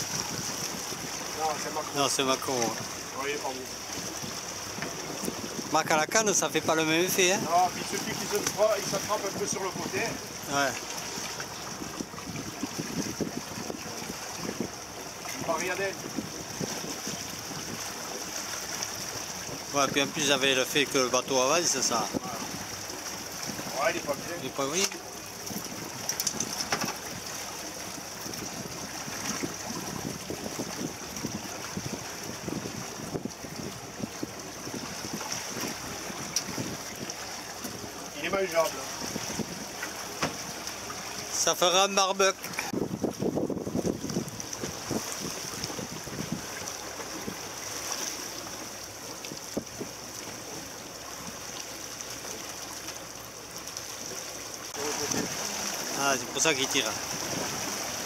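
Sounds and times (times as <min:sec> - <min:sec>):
wind and water hiss: 0:00.0 - 0:58.0
light clicks of fishing line: 0:26.0 - 0:27.0
light knocks: 0:40.2 - 0:40.4.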